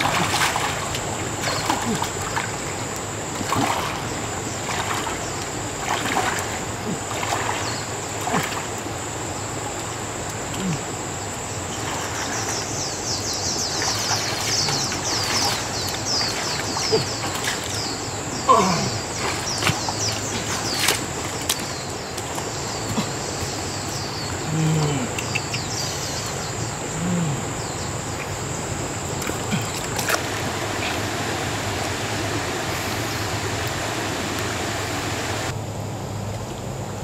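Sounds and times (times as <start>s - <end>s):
splashing in muddy water: 0.0s - 9.0s, 11.7s - 25.8s, 29.1s - 35.5s.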